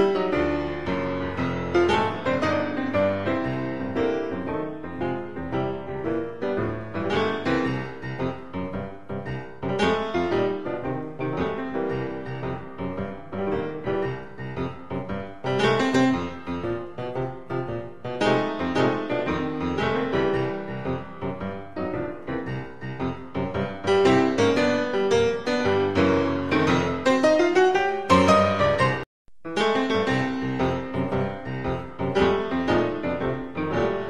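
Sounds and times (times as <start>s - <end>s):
piano music: 0.0s - 34.0s.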